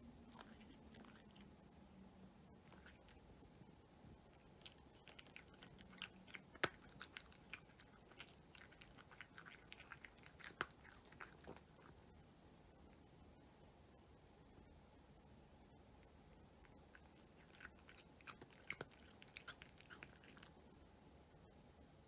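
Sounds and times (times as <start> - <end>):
cat chewing dry kibble: 0.3 - 1.6, 2.6 - 12.1, 16.0 - 20.7.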